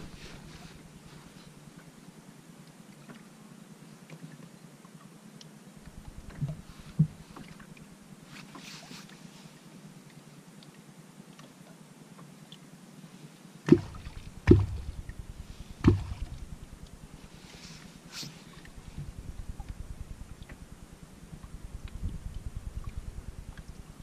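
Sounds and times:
wooden clonk striking water: 13.7 - 16.6.

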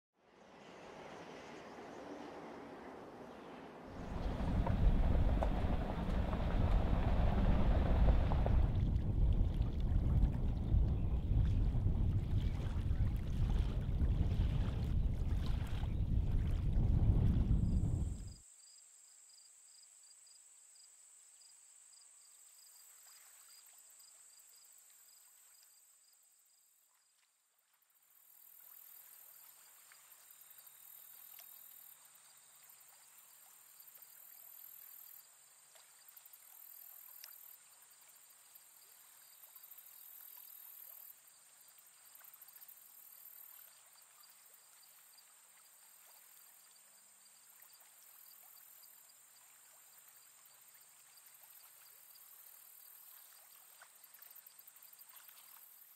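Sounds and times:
faint rapid pulsing: 4.0 - 9.7
faint ticks: 36.6 - 37.5.

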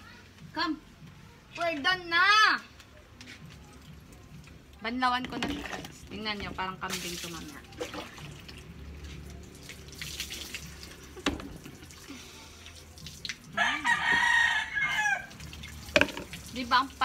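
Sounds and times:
rooster crowing: 13.6 - 15.4.

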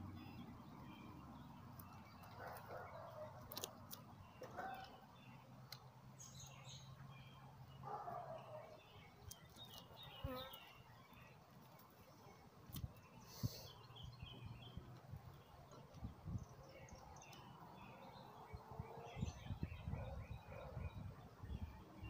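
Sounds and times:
birds chirping: 0.0 - 22.0
honeybees humming: 9.5 - 10.9.

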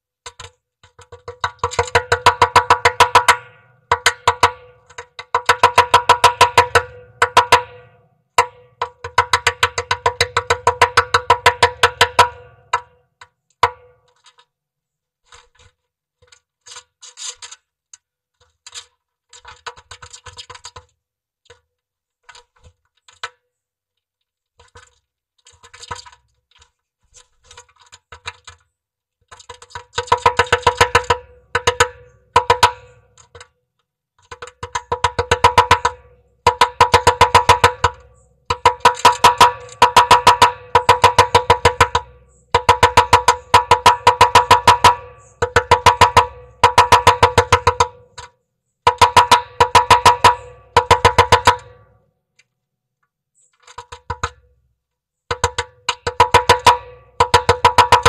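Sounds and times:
woodpecker knocking on wood: 0.3 - 14.4, 29.3 - 33.6, 34.2 - 52.0, 53.5 - 54.6, 55.3 - 58.0.

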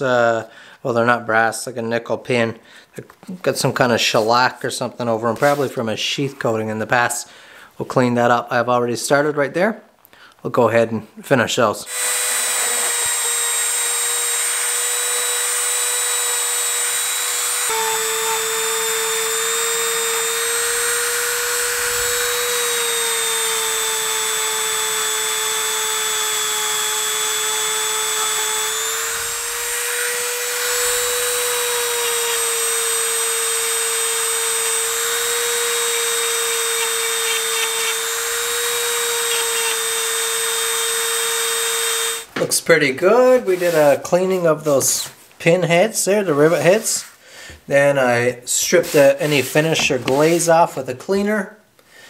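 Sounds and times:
rotary tool high whine: 11.9 - 42.3.

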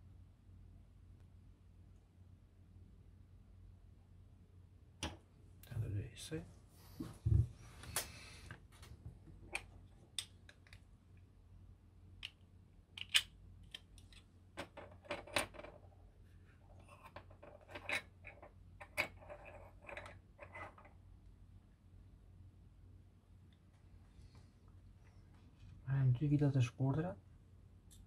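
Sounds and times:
plastic parts clicking: 13.0 - 15.5.

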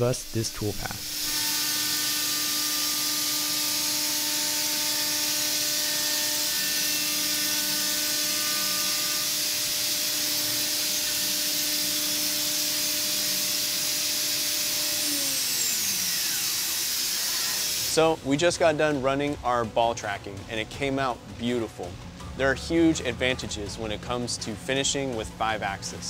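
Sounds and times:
milling machine hiss: 0.0 - 18.2.

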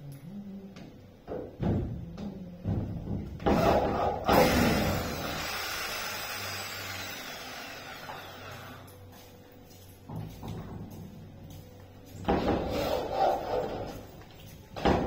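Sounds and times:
electric drill running: 3.6 - 8.9.

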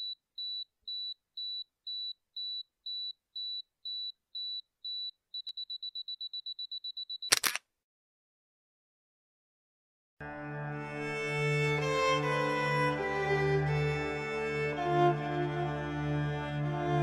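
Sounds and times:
camera self-timer beeping: 0.0 - 7.6
camera shutter click: 7.3 - 7.6.

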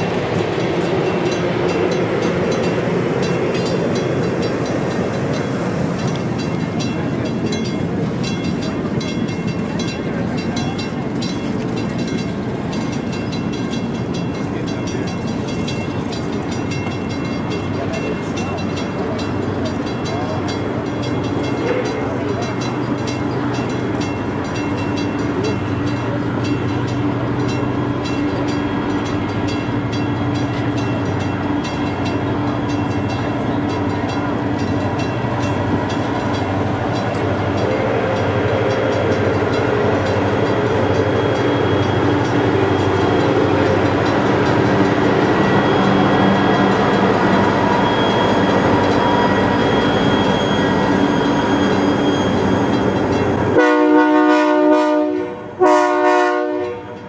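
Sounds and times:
train rolling past: 0.0 - 57.0.

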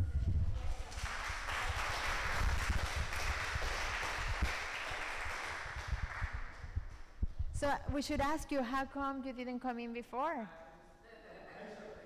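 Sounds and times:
people applauding: 0.0 - 7.0.

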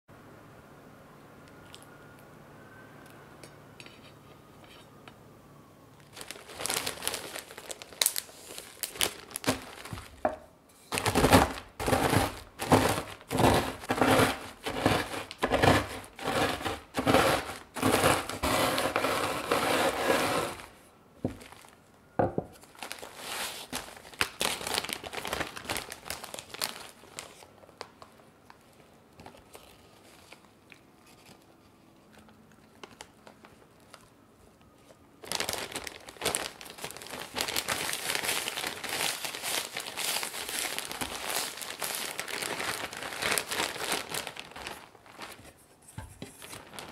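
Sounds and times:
plastic bag crinkling: 6.0 - 46.9
rolling pin crushing biscuits: 9.0 - 21.5.

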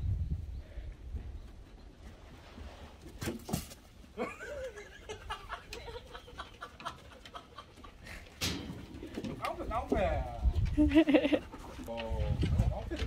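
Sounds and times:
person giggling: 4.2 - 8.2, 10.8 - 11.5
person chuckling softly: 4.2 - 8.3, 10.7 - 11.6.

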